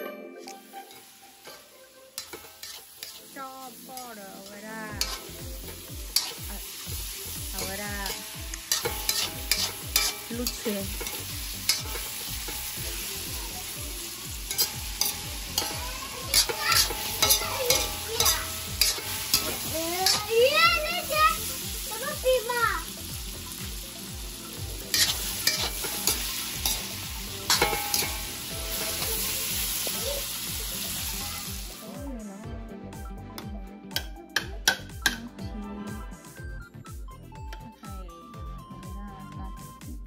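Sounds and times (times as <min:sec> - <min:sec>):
metal spatula scraping wok: 0:00.4 - 0:21.4, 0:24.8 - 0:31.2
food sizzling in wok: 0:00.4 - 0:32.0, 0:33.4 - 0:35.2.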